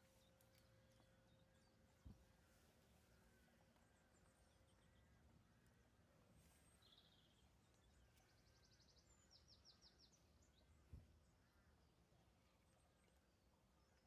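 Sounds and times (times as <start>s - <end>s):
birdsong trills and chirps: 6.5s - 14.0s.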